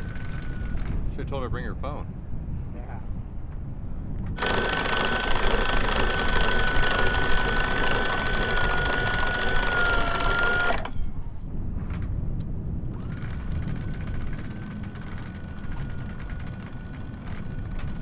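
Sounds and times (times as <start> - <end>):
electric winch motor whining: 0.0 - 0.9, 4.4 - 11.1, 13.0 - 18.0.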